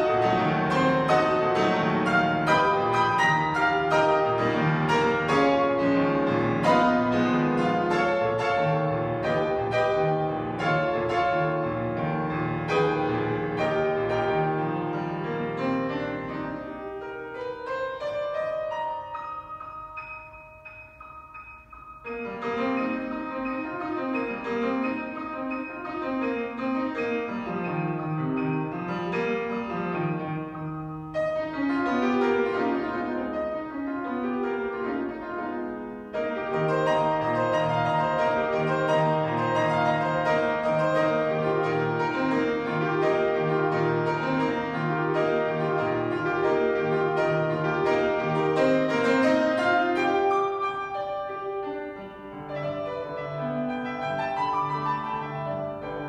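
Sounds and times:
solo grand piano piece: 0.0s - 56.0s.

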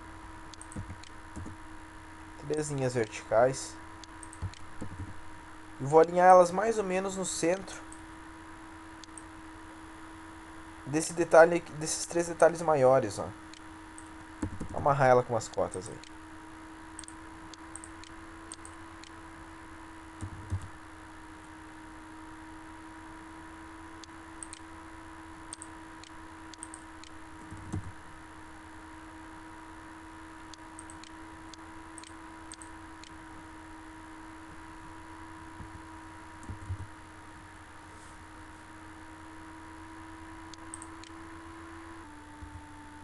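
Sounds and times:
electrical hum and hiss: 0.0s - 43.0s
computer mouse clicks: 0.5s - 1.6s, 4.0s - 5.2s, 13.5s - 14.8s, 17.0s - 19.2s, 20.2s - 20.7s, 24.0s - 24.6s, 25.5s - 27.9s, 30.5s - 33.2s, 36.4s - 36.9s, 40.5s - 41.2s
keyboard keys clicking: 0.6s - 1.6s, 4.2s - 5.2s, 14.4s - 14.8s
soft low thumps: 0.7s - 1.6s, 4.4s - 5.2s, 36.4s - 37.0s.

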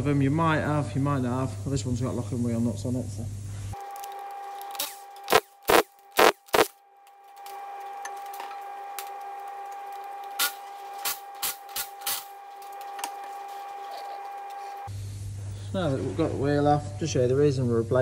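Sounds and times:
impact wrench bursts: 3.8s - 6.8s, 9.0s - 14.8s.

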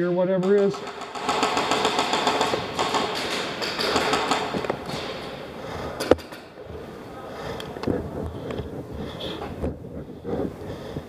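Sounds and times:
sharp crack: 0.3s - 6.6s
airsoft gunfire clatter: 0.4s - 6.6s.

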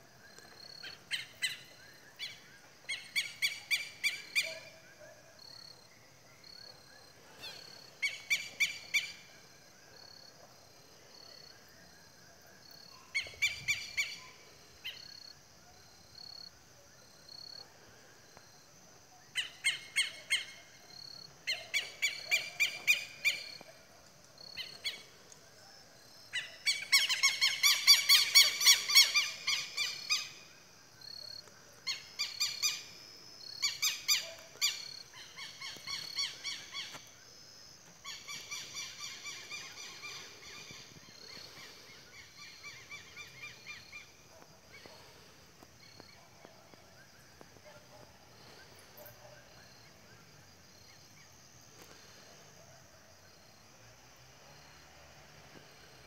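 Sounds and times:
birds shrill calling: 26.4s - 30.4s.

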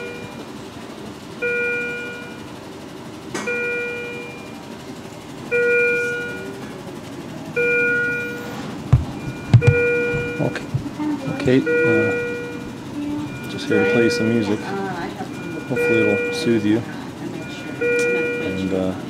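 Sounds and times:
monitor alarm bell-like chime: 9.0s - 10.7s, 11.4s - 12.7s, 13.3s - 14.7s, 15.3s - 16.6s.

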